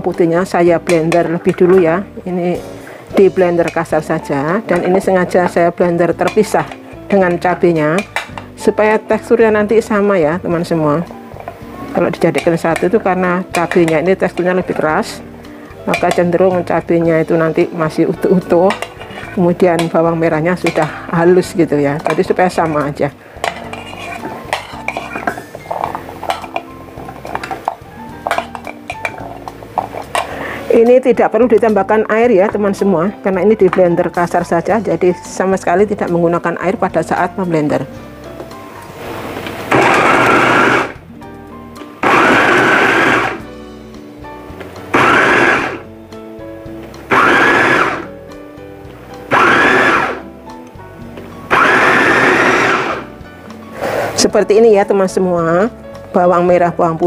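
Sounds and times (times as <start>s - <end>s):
metal spoon scraping a plate: 18.8s - 19.4s, 23.4s - 26.6s
electric food chopper whirring: 39.6s - 41.0s, 42.0s - 43.5s, 44.9s - 45.9s, 47.0s - 48.1s, 49.3s - 50.3s, 51.5s - 53.1s.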